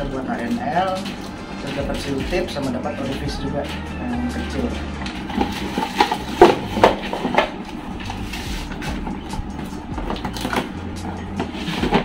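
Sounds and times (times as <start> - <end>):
cardboard boxes being handled: 11.4 - 12.0.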